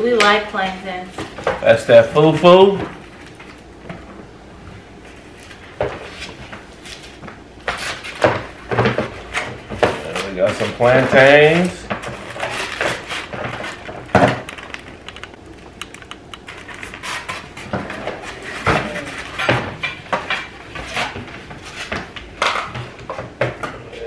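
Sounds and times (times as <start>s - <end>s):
aluminium foil crinkling: 9.3s - 22.9s.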